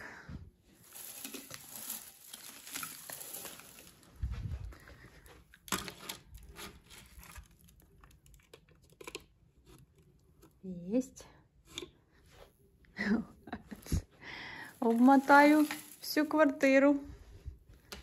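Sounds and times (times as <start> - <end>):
crinkling and rustling: 0.7 - 10.6, 13.6 - 18.0.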